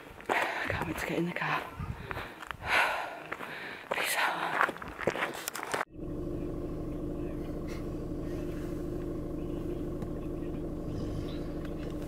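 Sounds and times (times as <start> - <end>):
car engine idling: 5.9 - 12.0.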